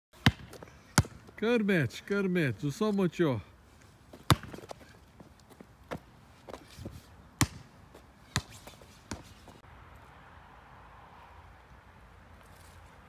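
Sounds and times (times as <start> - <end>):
basketball bouncing on pavement: 0.2 - 1.4, 4.1 - 9.6.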